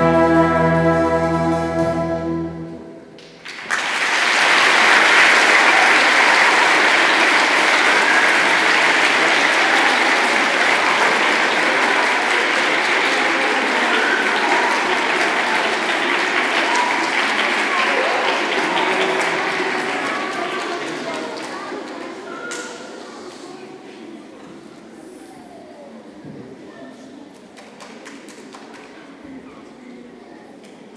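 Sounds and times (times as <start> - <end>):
orchestra holding final chord: 0.0 - 3.1
audience applause: 3.2 - 22.4.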